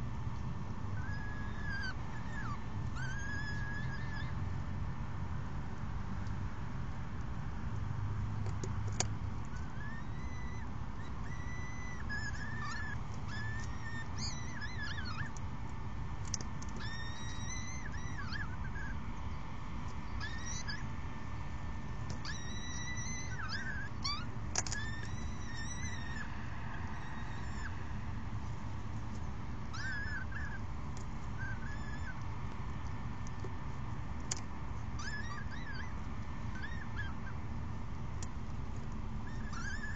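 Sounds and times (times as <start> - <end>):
falcon chicks calling: 1.0 - 4.4, 8.9 - 15.4, 16.2 - 19.0, 20.0 - 20.9, 22.0 - 28.3, 29.0 - 37.4, 38.2 - 39.9.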